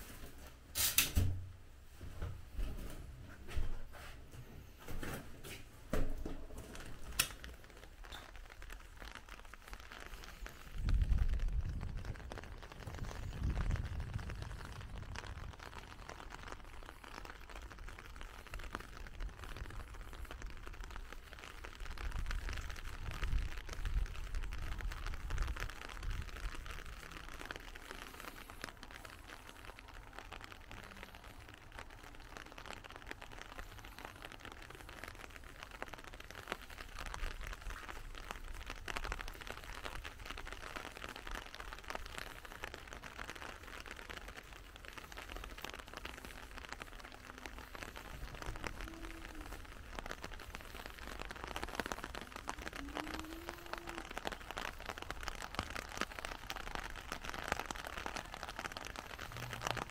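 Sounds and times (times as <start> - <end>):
light rain pattering: 0.0 - 59.9
wind rumble on microphone: 10.4 - 27.4.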